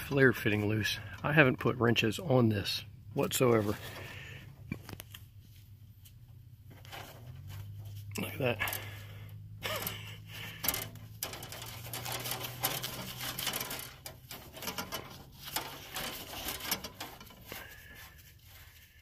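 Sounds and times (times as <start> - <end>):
low steady hum: 0.0 - 19.0
work glove rustling: 3.2 - 19.0
metal threads scraping and clicking: 9.6 - 18.0.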